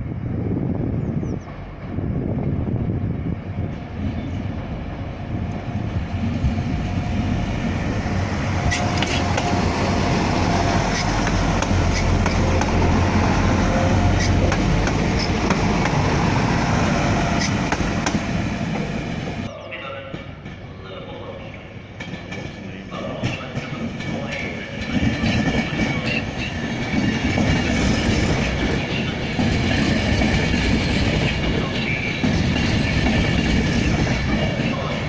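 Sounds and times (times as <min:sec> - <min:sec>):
passenger train rumbling past: 0:00.0 - 0:35.0
wheels clicking over rail joints: 0:14.1 - 0:16.0.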